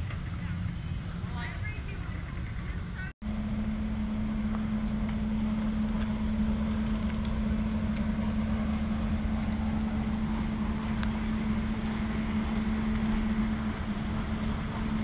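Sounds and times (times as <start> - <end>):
constant hum: 0.0 - 15.0
vehicle engine rumble: 0.0 - 15.0.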